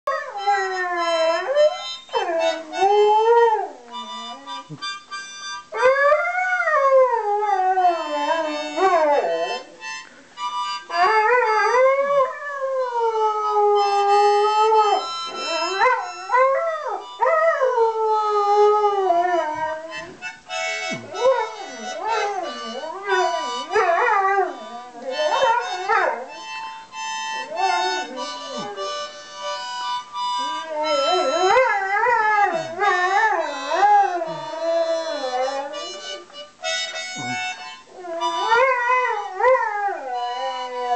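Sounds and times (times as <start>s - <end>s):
harmonica chords: 0.1s - 40.9s
dog howling: 21.0s - 26.4s, 27.4s - 28.9s, 30.4s - 35.9s, 38.0s - 40.9s.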